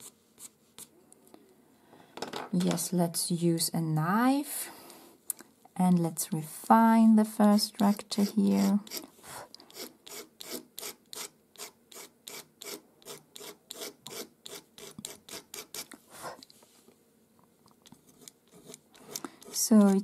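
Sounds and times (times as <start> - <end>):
pencil scratching on paper: 7.8 - 16.0, 17.8 - 20.0.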